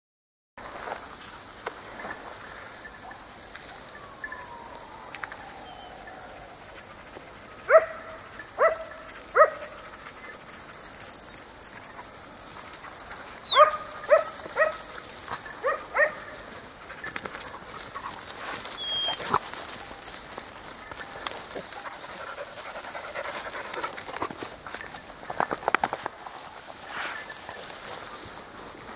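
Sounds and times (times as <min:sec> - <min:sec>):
dog yelping: 0:13.4 - 0:14.9, 0:15.5 - 0:16.6, 0:18.8 - 0:19.4.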